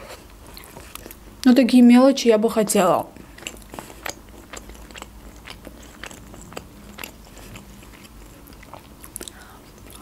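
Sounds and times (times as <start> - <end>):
person chewing: 0.4 - 1.4, 3.1 - 10.0.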